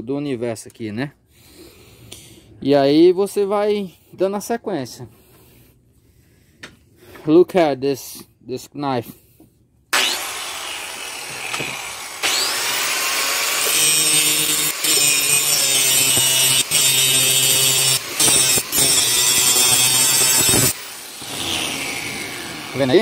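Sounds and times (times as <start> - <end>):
angle grinder grinding steel: 9.9 - 23.0.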